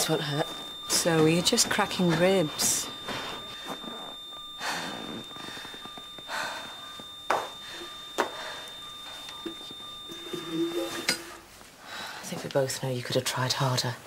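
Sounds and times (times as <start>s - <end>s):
faint high electronic tone: 0.0s - 11.6s
breathy puffs: 2.2s - 9.4s.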